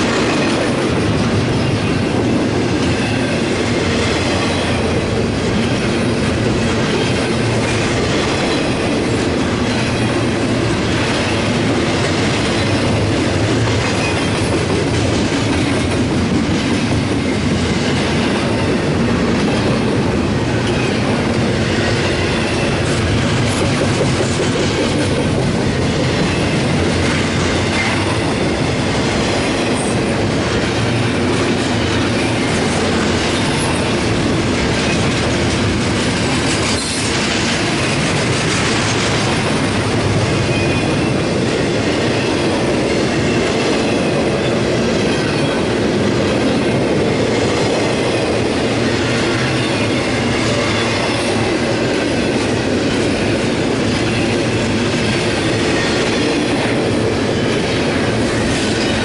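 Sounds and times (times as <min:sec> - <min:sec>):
freight train wheels clattering: 0:00.0 - 0:59.0.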